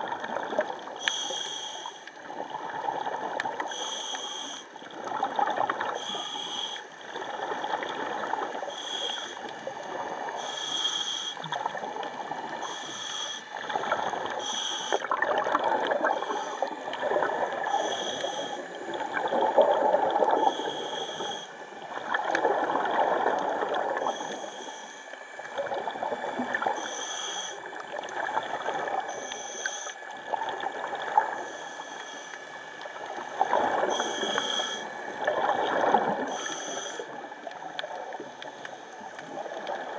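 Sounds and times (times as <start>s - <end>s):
exhaled bubbles surging: 0.0s - 1.0s, 4.8s - 6.2s, 13.5s - 14.4s, 15.0s - 20.9s, 21.8s - 24.4s, 32.9s - 34.4s, 35.0s - 36.4s
diver breathing through regulator: 1.0s - 2.2s, 3.6s - 4.9s, 5.8s - 7.1s, 8.2s - 15.2s, 15.8s - 22.4s, 23.6s - 27.8s, 28.4s - 30.1s, 31.2s - 32.8s, 33.4s - 37.3s.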